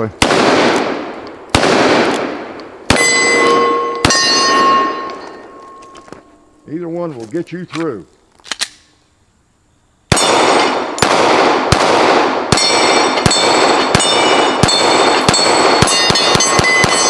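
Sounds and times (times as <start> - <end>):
pistol shots: 0.2 - 5.2, 10.1 - 17.0
steel targets ringing: 2.9 - 6.6, 12.5 - 17.0.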